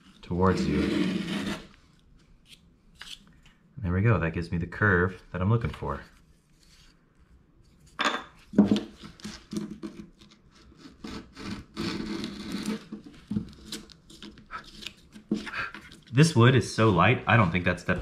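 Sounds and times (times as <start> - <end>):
chisel scraping wood: 0.4 - 1.8, 8.8 - 16.1.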